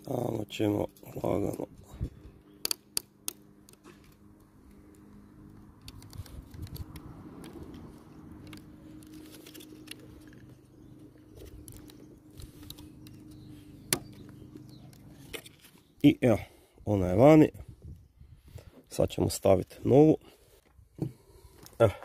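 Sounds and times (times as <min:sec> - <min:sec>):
small plastic clicks: 0:02.5 - 0:10.6, 0:11.2 - 0:15.8.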